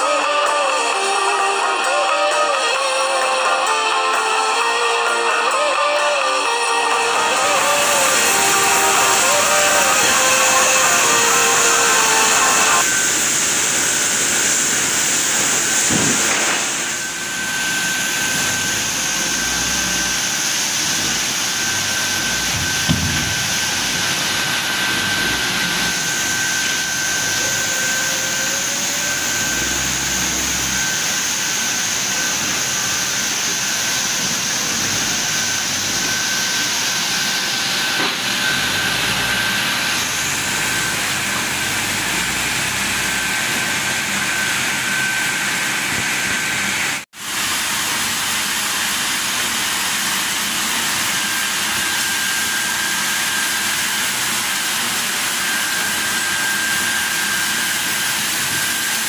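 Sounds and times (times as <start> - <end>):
high machine whine: 0.0 - 59.0
sawmill machinery din: 0.0 - 59.0
hissing noise: 6.4 - 44.1.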